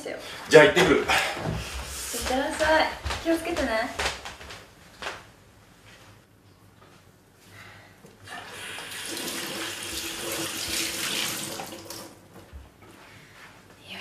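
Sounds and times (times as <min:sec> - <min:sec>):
tap water running into sink: 0:08.4 - 0:12.2.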